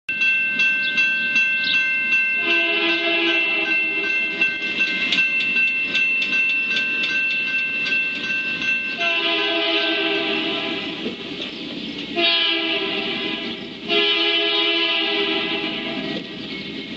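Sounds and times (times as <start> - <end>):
railroad crossing bell ringing: 0.1 - 16.9
locomotive horn blasts: 2.4 - 4.1, 9.0 - 11.1, 12.2 - 16.2.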